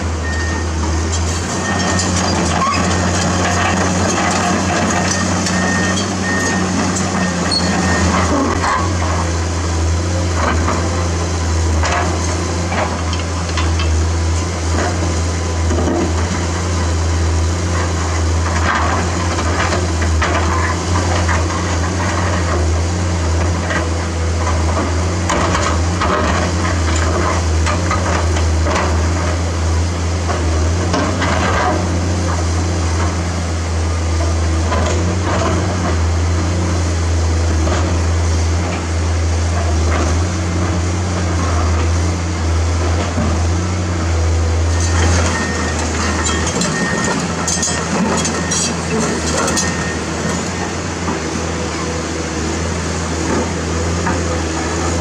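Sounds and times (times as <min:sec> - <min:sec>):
excavator diesel engine humming: 0:00.0 - 0:55.0.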